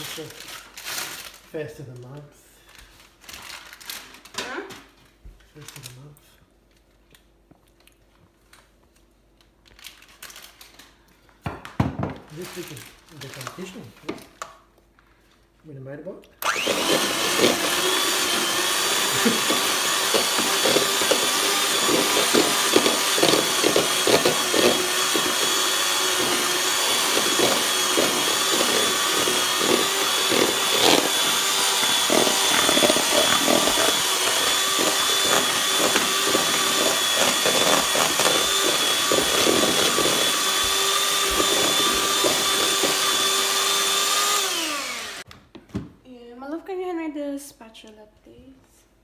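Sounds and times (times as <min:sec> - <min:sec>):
electric hand mixer whining: 0:16.4 - 0:45.3.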